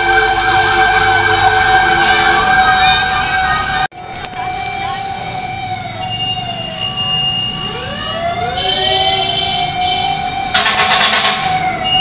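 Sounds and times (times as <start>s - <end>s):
harsh horn blast: 0.0s - 3.9s
fire truck sirens wailing: 0.0s - 12.0s
street traffic: 0.0s - 12.0s.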